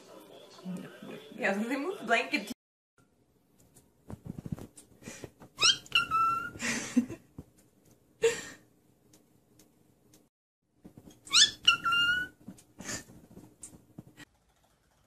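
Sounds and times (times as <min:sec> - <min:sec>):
rustling noise: 0:03.6 - 0:05.6, 0:12.4 - 0:14.3
cockatiel whistling chirps: 0:05.6 - 0:06.6, 0:11.3 - 0:12.4.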